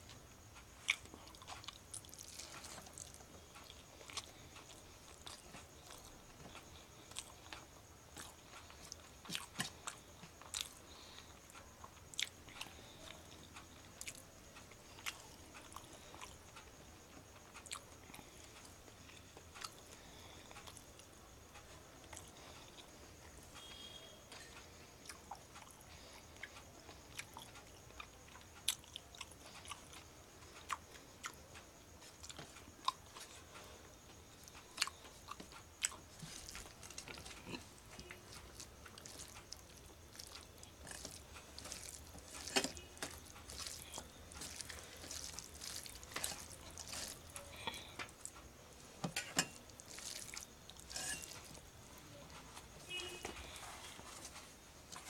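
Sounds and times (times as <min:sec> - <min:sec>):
chewing and mouth smacks: 0:00.8 - 0:10.9, 0:34.4 - 0:48.5, 0:49.6 - 0:51.7.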